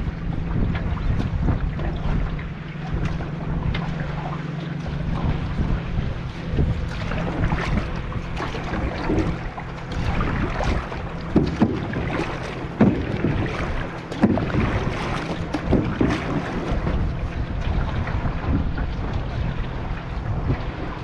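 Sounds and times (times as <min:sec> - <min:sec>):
water splashing against boat: 0:00.0 - 0:21.0
wind buffeting microphone: 0:00.0 - 0:21.0.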